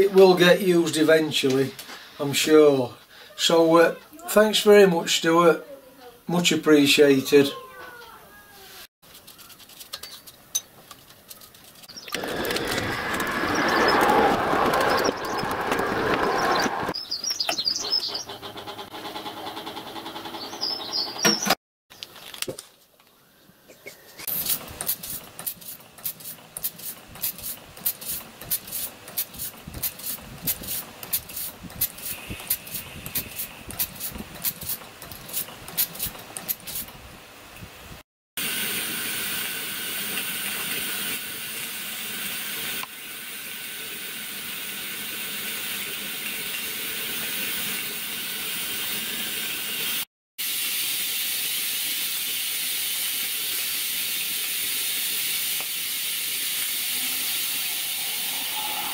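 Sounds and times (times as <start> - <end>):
steam hissing: 24.3 - 36.1, 38.4 - 58.9.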